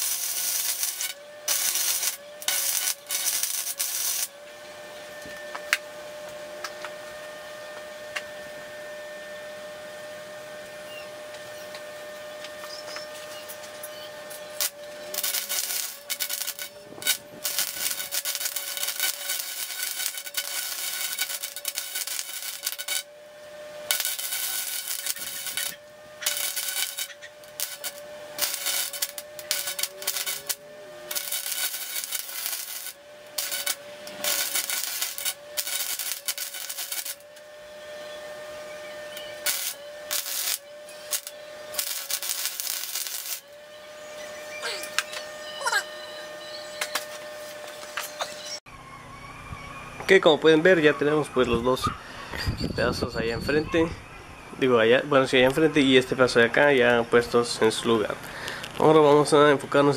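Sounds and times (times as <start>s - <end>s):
arc welding crackling: 0.0s - 4.4s, 11.3s - 45.8s.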